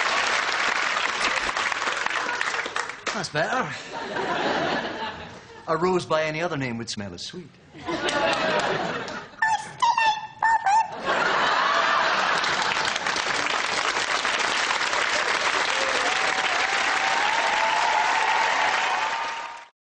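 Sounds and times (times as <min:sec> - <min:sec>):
studio audience applauding: 0:00.0 - 0:03.6, 0:11.3 - 0:19.7
voices cheering: 0:15.1 - 0:19.7.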